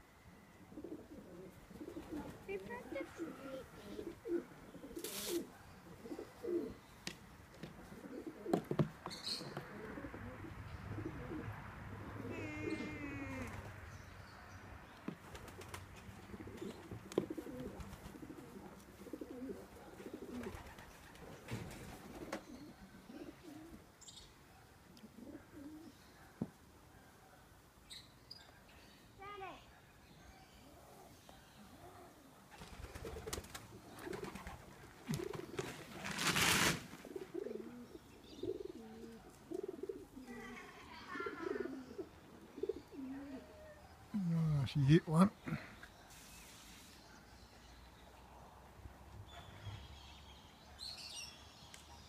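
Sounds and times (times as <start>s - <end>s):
pigeons cooing: 0.6s - 6.9s, 7.7s - 13.8s, 15.2s - 23.9s, 25.0s - 26.1s, 30.9s - 36.2s, 37.0s - 46.3s.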